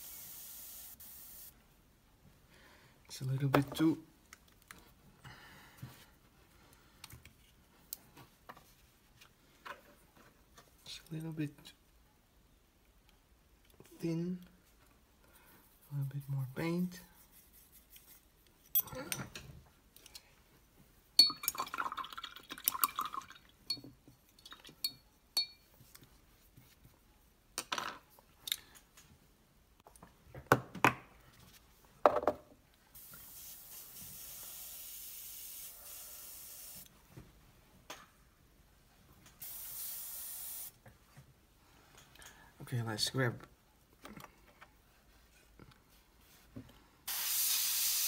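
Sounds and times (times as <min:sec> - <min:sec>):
airbrush spraying hiss: 0:00.0 - 0:01.6, 0:33.0 - 0:36.9, 0:39.4 - 0:40.8, 0:47.1 - 0:48.0
metal and glass clinks: 0:18.7 - 0:19.3.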